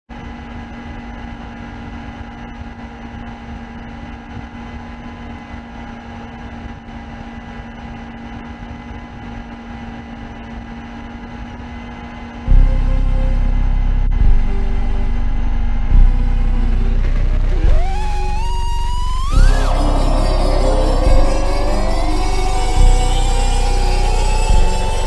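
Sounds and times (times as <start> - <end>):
steady low hum: 12.4 - 25.0.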